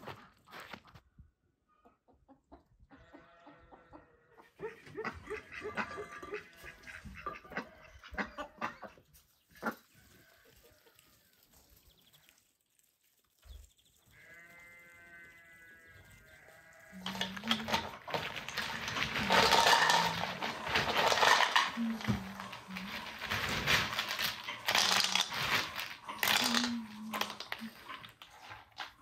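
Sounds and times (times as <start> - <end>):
chickens and ducks calling: 1.6 - 11.5
walnuts clattering: 16.9 - 29.0.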